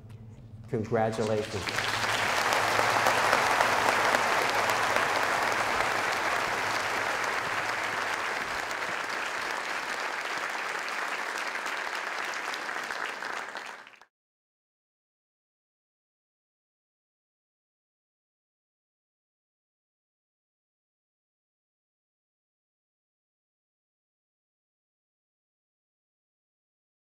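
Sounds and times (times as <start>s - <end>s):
audience applauding: 1.0s - 14.1s.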